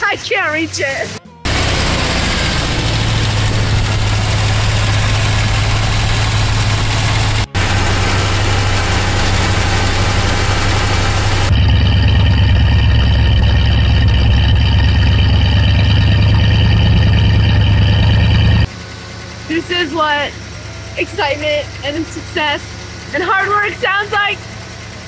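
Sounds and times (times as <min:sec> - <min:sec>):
truck engine idling: 0:00.0 - 0:25.0.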